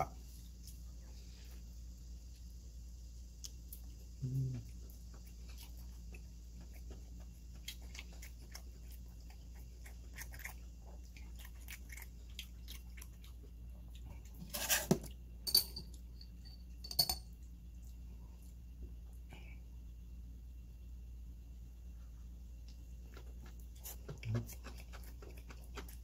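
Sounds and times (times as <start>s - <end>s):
close-up chewing: 3.4s - 14.5s, 22.6s - 26.0s
chopsticks clinking against glass jar: 15.5s - 17.3s.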